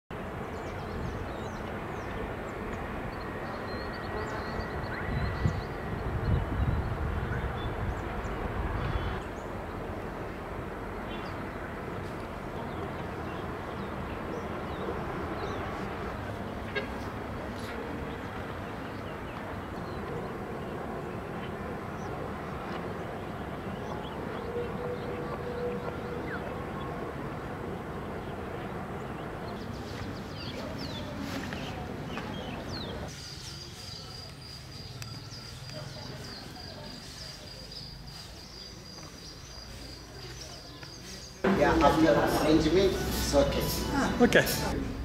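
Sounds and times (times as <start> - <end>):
distant traffic rumble: 0.1 - 45.0
small birds chirping: 11.1 - 44.7
faint bird chirps: 32.7 - 41.4.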